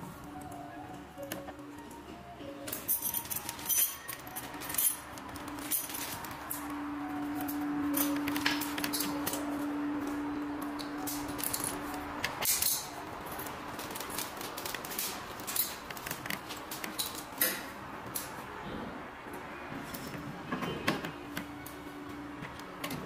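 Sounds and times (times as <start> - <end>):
steady hum: 4.2 - 15.4.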